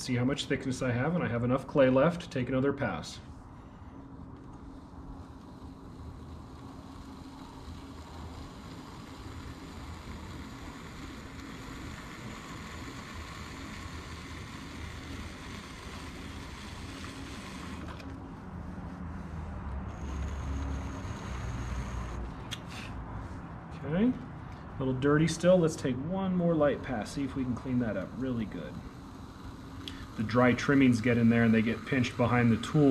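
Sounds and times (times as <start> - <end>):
pottery wheel motor hum: 0.0 - 32.9
tool scraping clay: 19.3 - 22.7, 27.2 - 32.9.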